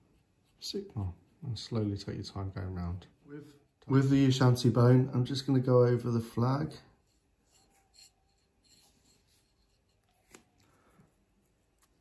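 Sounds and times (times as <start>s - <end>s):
paintbrush scratching on plastic: 0.0s - 4.6s, 6.9s - 10.6s.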